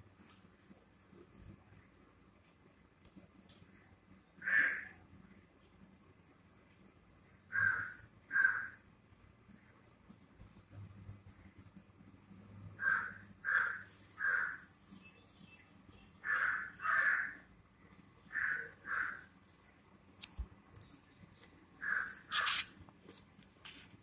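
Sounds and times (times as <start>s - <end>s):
crows cawing: 4.4s - 5.0s, 7.5s - 8.8s, 12.8s - 14.6s, 16.2s - 17.5s, 18.3s - 19.3s, 21.8s - 22.5s.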